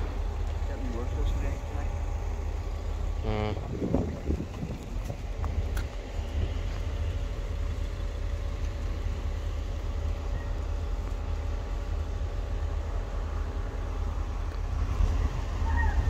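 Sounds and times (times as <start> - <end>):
diesel train engine hum: 0.0 - 16.0
wind rumble on microphone: 3.1 - 11.3, 13.5 - 16.0.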